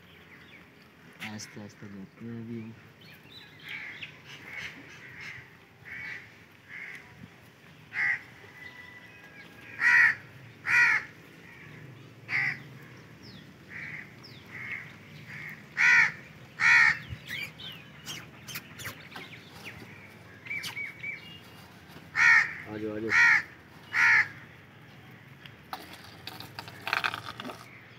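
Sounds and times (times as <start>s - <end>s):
small birds chirping: 0.0s - 27.9s
crows cawing: 3.5s - 7.2s, 7.9s - 17.4s, 19.5s - 24.6s.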